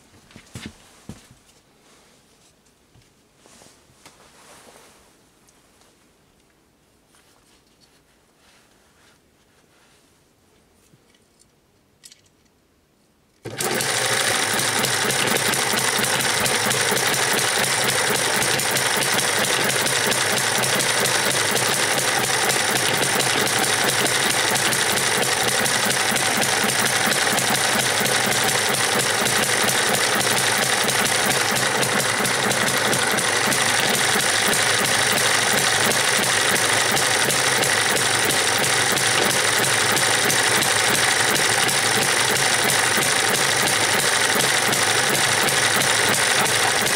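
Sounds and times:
model gas engine clattering: 13.4 - 46.9
starter motor spinning: 13.4 - 46.9.

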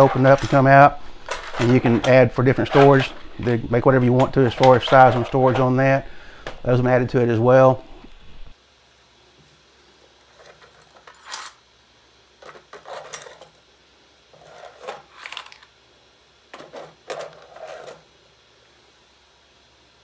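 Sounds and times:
metal parts rattling: 0.0 - 6.6, 12.4 - 13.5
plastic drawer sliding: 14.4 - 15.6, 16.6 - 18.0.

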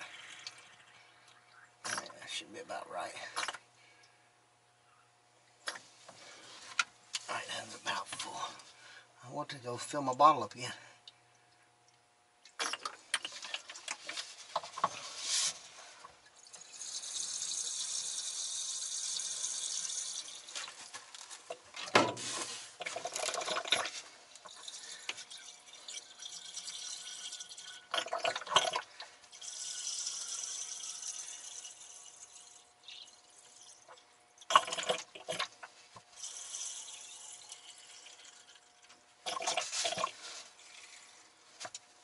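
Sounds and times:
water pouring and trickling: 0.0 - 2.2, 16.1 - 41.5.

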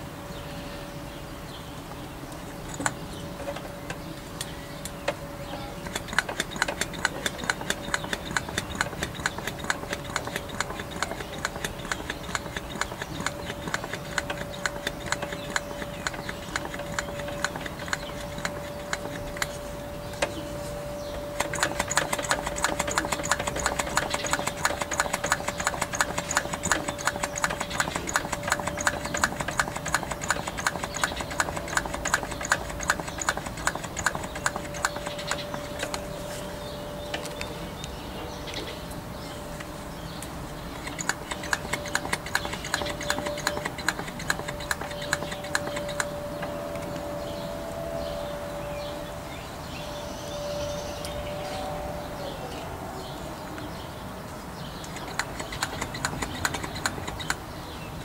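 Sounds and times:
vacuum pump humming: 0.0 - 58.0
fast even clicking: 2.3 - 5.2, 5.8 - 20.4, 21.1 - 36.1, 40.2 - 46.2, 54.8 - 58.0.

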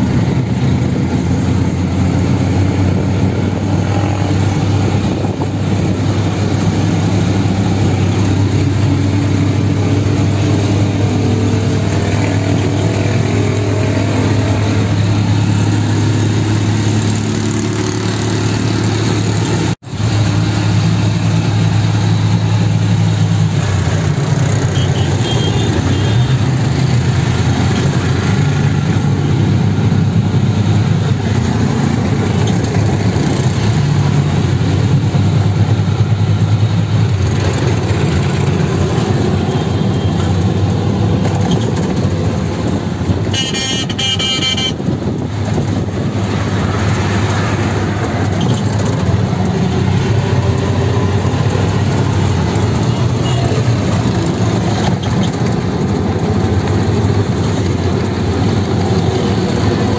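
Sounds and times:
auto rickshaw engine running: 0.0 - 59.9
road and wind noise: 0.0 - 59.9
vehicle horn: 24.7 - 26.4, 43.2 - 44.8, 52.8 - 53.6.

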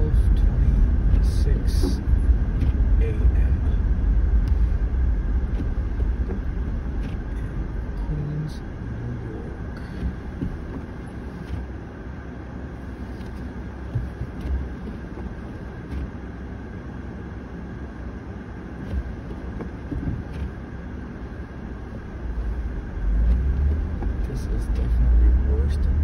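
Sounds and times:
car cabin low rumble: 0.0 - 26.0
faint steady hum: 0.0 - 26.0
light irregular knocks: 5.5 - 7.4, 9.8 - 11.7, 13.2 - 16.1, 18.8 - 20.6.

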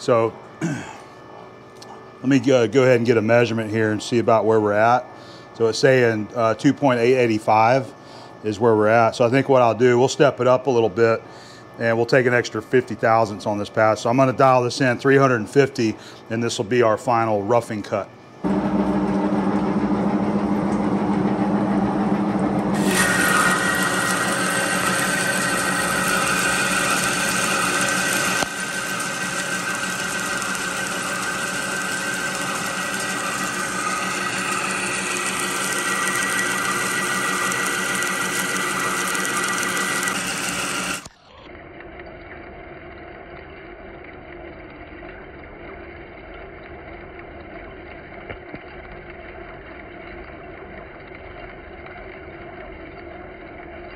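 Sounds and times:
lathe cutting steel with whine: 18.4 - 41.2.

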